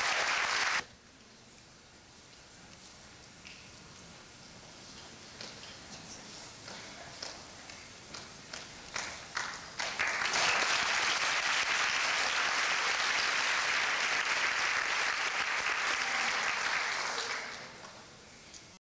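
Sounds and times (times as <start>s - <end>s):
audience applauding: 0.0s - 0.8s, 8.5s - 18.0s.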